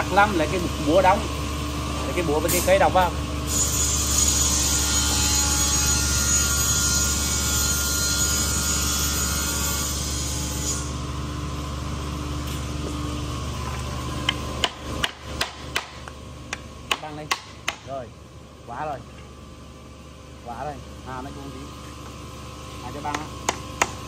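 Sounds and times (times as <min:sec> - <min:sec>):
workshop machinery running: 0:00.0 - 0:24.0
hammer striking wooden board: 0:14.3 - 0:17.9, 0:23.1 - 0:24.0.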